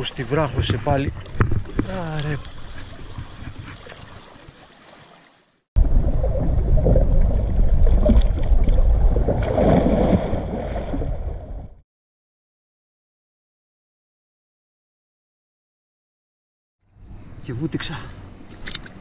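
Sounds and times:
person diving into water: 5.8 - 11.8.

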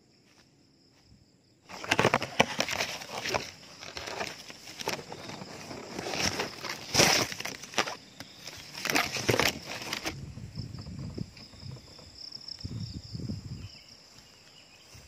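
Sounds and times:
leaves and twigs scraping: 1.6 - 12.1.

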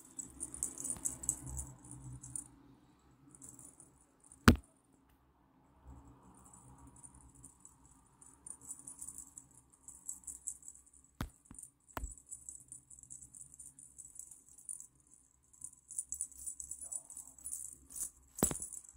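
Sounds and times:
cat toy jingling: 0.0 - 2.5, 6.7 - 18.9.

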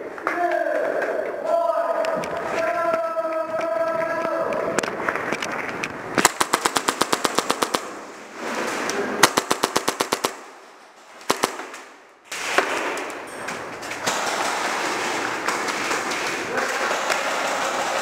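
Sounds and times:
airsoft gun firing: 6.2 - 8.1, 9.2 - 10.6, 11.2 - 13.2, 14.0 - 18.0.

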